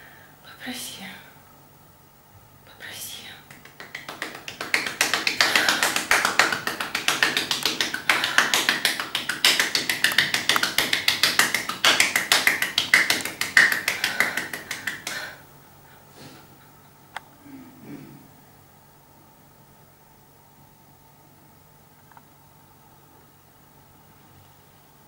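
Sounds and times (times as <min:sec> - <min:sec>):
rapid sharp tapping: 0:03.5 - 0:15.4.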